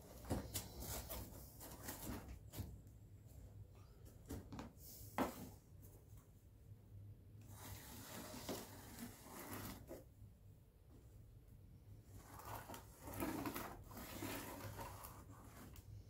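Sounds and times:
cardboard scraping and rustling: 0.0s - 2.7s, 7.6s - 10.0s, 12.2s - 15.8s.

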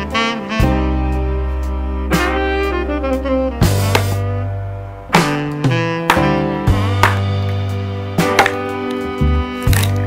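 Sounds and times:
background music with bass line: 0.0s - 10.0s.

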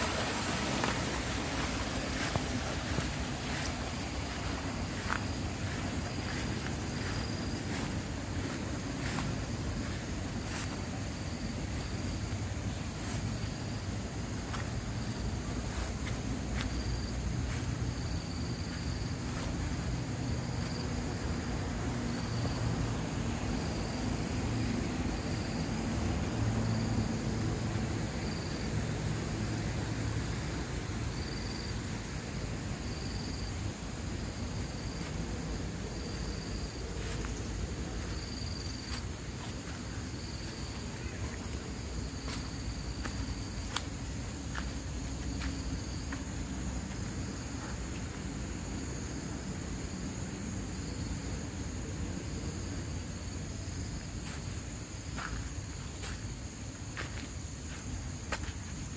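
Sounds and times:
shallow water flowing: 0.0s - 13.3s.

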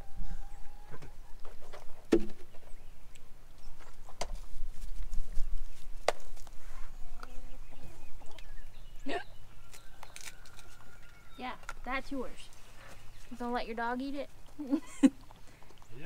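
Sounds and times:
dogs eating crunching: 9.7s - 16.0s.

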